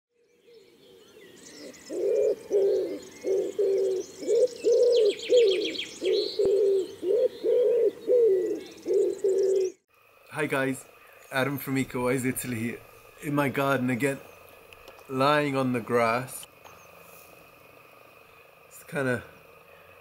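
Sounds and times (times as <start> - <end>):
small birds chirping: 0.2 - 20.0
pigeon cooing: 1.6 - 9.8.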